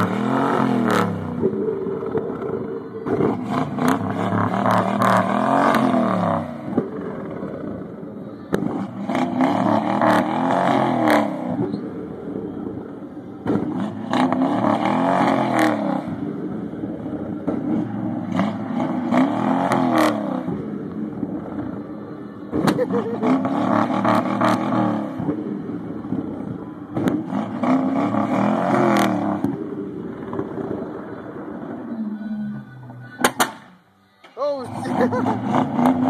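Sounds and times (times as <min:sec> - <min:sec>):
engine revving hard: 0:00.0 - 0:01.6, 0:02.3 - 0:07.5, 0:08.6 - 0:11.7, 0:13.4 - 0:16.2, 0:17.5 - 0:20.6, 0:22.6 - 0:25.3, 0:27.0 - 0:30.9, 0:34.6 - 0:36.0
exhaust pops and bangs: 0:13.4 - 0:14.1, 0:17.3 - 0:18.8, 0:22.5 - 0:23.0, 0:33.2 - 0:33.7.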